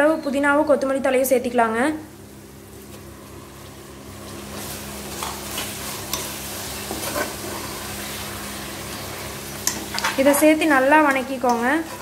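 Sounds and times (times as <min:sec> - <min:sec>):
food sizzling in a pot: 0:02.1 - 0:12.0
spatula scraping a pot: 0:05.2 - 0:07.8, 0:09.7 - 0:12.0.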